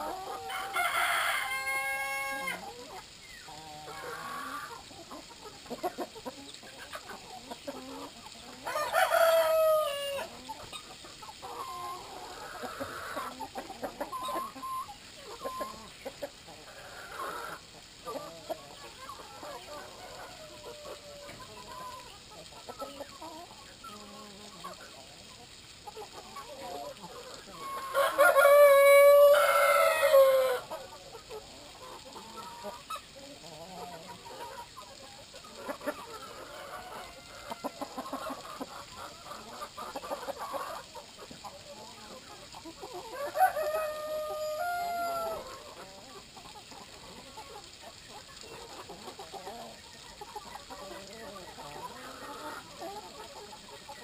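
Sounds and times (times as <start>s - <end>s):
hens clucking: 0.0s - 54.0s
rooster crowing: 0.5s - 2.6s, 8.7s - 10.3s, 27.9s - 30.7s, 43.2s - 45.5s.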